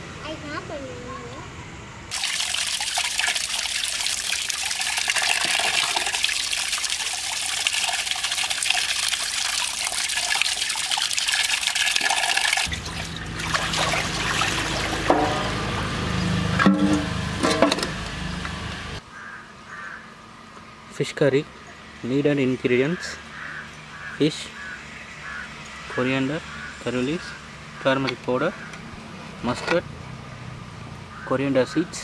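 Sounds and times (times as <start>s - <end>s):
water splashing in a metal pot: 2.1s - 15.8s.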